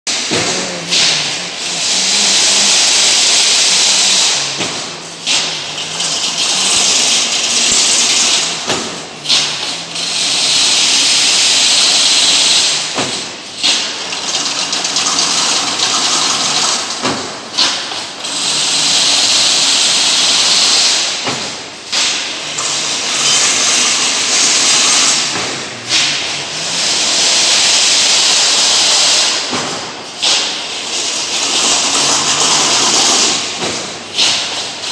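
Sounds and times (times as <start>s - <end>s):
machine clunk: 0.1s - 3.0s, 20.8s - 34.8s
wire hissing rattle: 0.1s - 34.7s.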